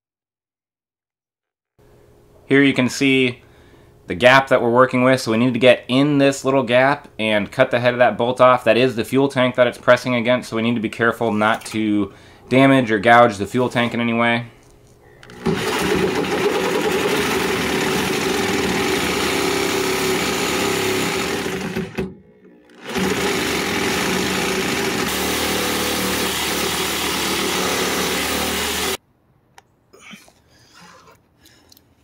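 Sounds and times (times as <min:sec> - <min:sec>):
reciprocating saw cutting metal: 0:15.3 - 0:29.0.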